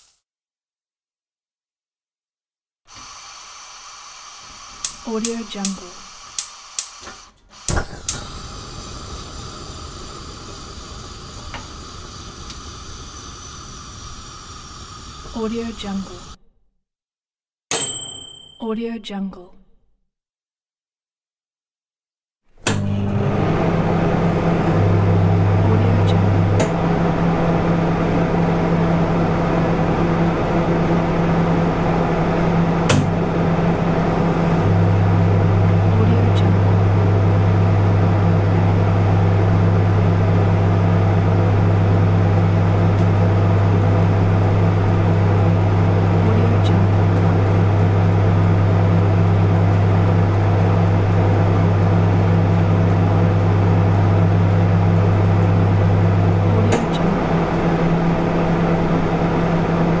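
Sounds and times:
hiss: 2.9s - 5.1s, 5.9s - 16.4s
kitchen appliance humming: 2.9s - 16.4s, 22.6s - 60.0s.

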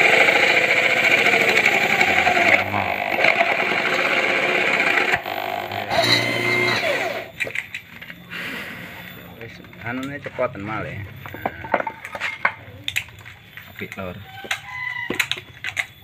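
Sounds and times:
electric drill boring into wood: 0.0s - 7.4s.

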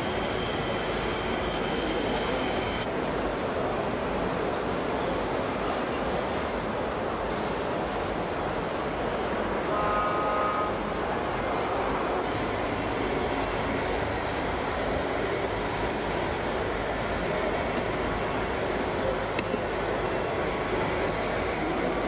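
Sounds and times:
faint high whine: 0.0s - 2.9s
horn sounding: 9.7s - 10.9s.

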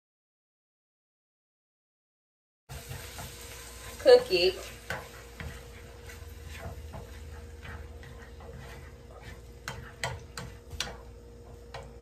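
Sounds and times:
spatula tapping and scraping a pan: 2.7s - 12.0s.

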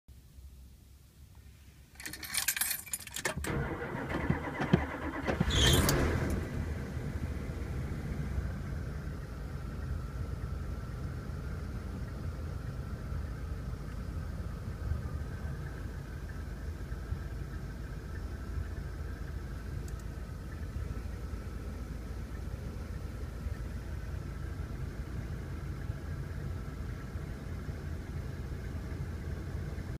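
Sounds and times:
keys jangling: 2.0s - 3.4s
starter motor cranking: 3.4s - 6.4s
van engine idling: 3.4s - 30.0s.

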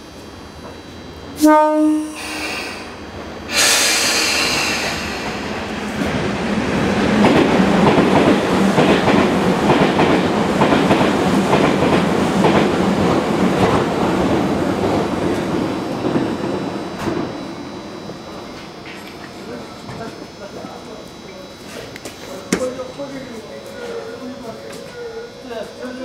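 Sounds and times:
steady machine hum: 0.0s - 26.0s
loud hiss: 2.1s - 5.9s.

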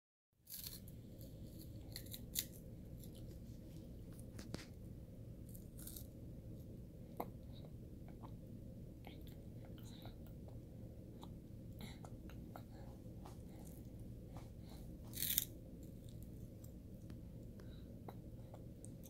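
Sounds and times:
baby chewing crunches: 0.5s - 4.7s, 15.1s - 16.8s
steady low hum: 0.5s - 19.0s.

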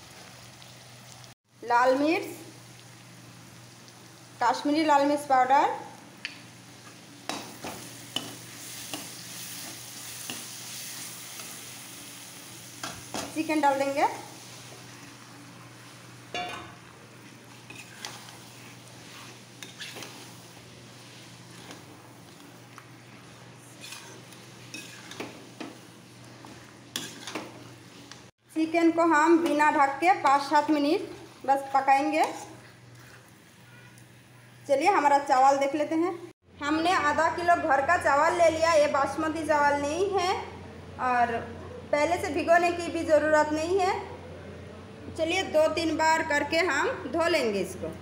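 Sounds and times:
paste sizzling in hot oil: 6.6s - 28.3s
metal spatula scraping a pan: 17.4s - 22.4s, 23.6s - 27.6s
spoon scraping and clicking on pan: 17.6s - 18.4s, 19.6s - 20.3s, 23.8s - 25.8s, 26.9s - 28.2s.

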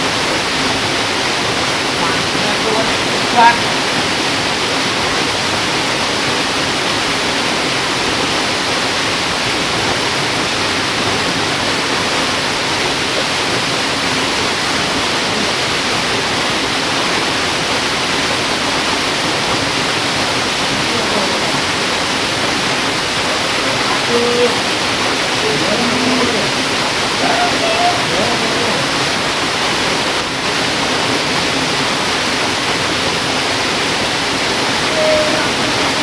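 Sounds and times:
fast-flowing river water: 0.0s - 36.0s.

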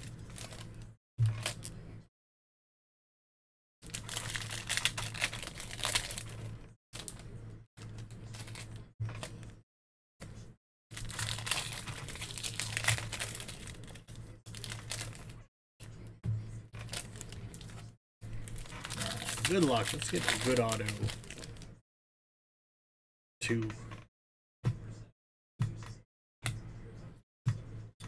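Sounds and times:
foil wrappers tearing and crinkling: 0.0s - 0.8s, 3.8s - 7.2s, 10.9s - 15.4s, 16.8s - 21.6s
low electrical hum: 3.9s - 9.6s, 10.2s - 21.8s.

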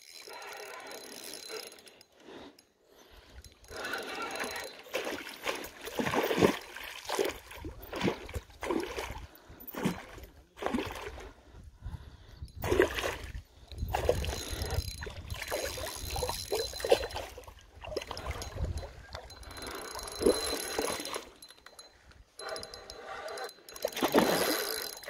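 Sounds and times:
water splashing: 4.4s - 9.2s, 23.9s - 24.8s.

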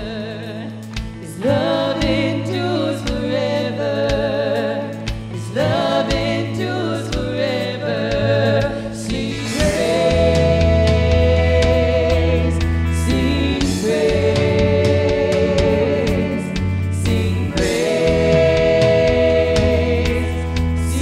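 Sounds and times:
electric guitar: 0.0s - 21.0s
women singing with vibrato: 0.0s - 21.0s
keyboard playing: 7.8s - 21.0s.

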